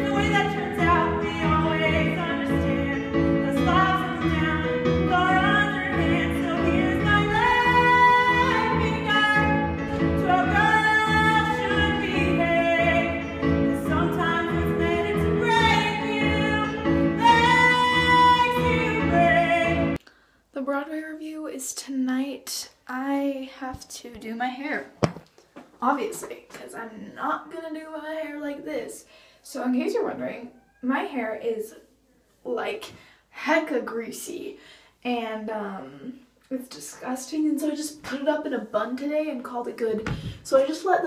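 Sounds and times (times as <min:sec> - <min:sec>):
instrumental backing: 0:00.0 - 0:20.0
woman singing show tune: 0:00.0 - 0:20.0.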